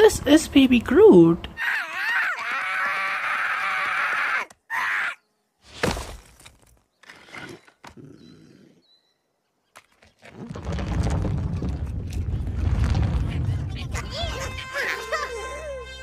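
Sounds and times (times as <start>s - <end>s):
low rumble: 10.5s - 14.6s.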